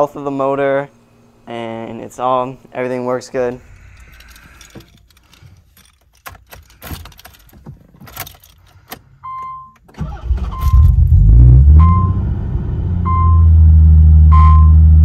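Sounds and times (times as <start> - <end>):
car engine cranking and starting: 3.6 - 13.9
keys jangling and clicking: 3.7 - 9.5
dashboard chime beeping: 11.8 - 12.2, 14.3 - 14.8.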